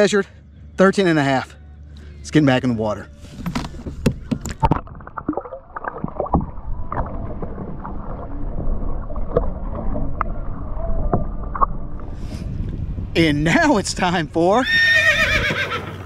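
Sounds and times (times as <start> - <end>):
underwater sloshing and bubbling: 2.9 - 13.1
fish splashing into water: 4.4 - 9.7.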